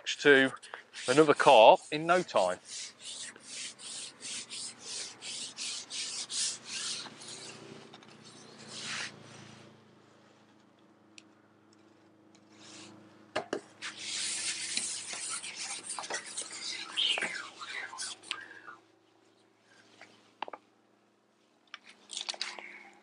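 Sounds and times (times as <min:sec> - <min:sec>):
fishing pole sections swishing: 0:00.4 - 0:09.2, 0:13.8 - 0:18.4.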